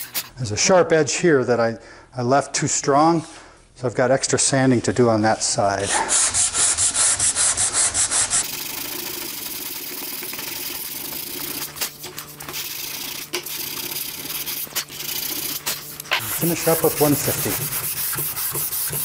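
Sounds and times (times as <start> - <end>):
sandpaper rubbing on filler: 5.1 - 19.0.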